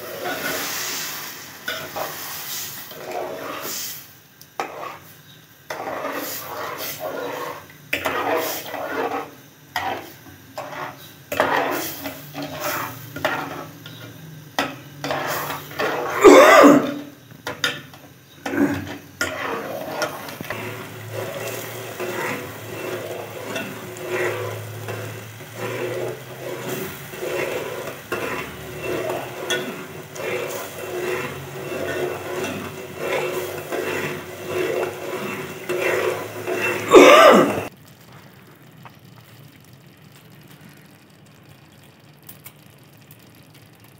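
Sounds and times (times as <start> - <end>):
metal spoon scraping a pot: 2.9 - 3.8, 4.6 - 5.1, 5.7 - 37.7.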